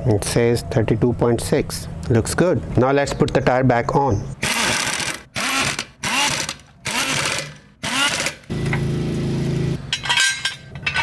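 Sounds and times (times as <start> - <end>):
air impact wrench: 4.4 - 8.8
metal clanks and rattles: 9.9 - 11.0.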